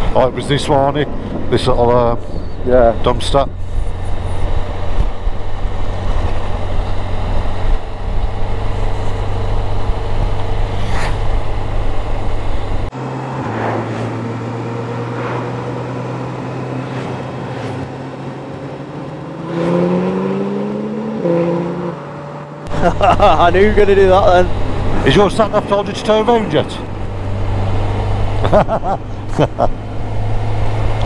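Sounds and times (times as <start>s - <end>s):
motorcycle engine hum: 0.0s - 31.0s
wind rush: 1.0s - 15.9s.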